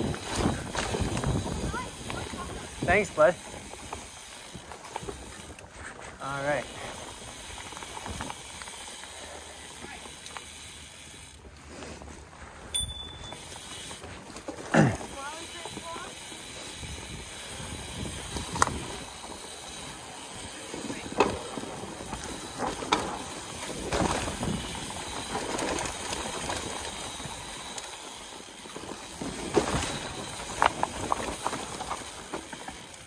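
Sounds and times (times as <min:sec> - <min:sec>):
bike clunks and rattles: 0:00.0 - 0:02.6, 0:20.8 - 0:33.0
wind on microphone: 0:00.0 - 0:02.9
tyres rolling over leaves: 0:00.0 - 0:33.0.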